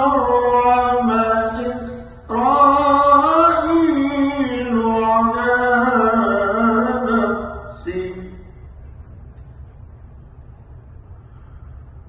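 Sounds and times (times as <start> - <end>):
man reciting melodically: 0.0 - 8.6.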